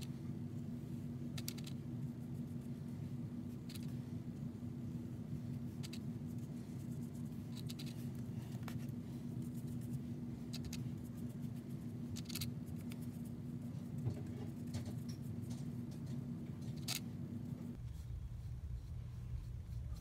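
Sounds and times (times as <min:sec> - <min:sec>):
faint constant tone: 0:00.0 - 0:20.0
low room hum: 0:00.0 - 0:20.0
brush scratching on paper: 0:05.4 - 0:15.4, 0:17.7 - 0:20.0.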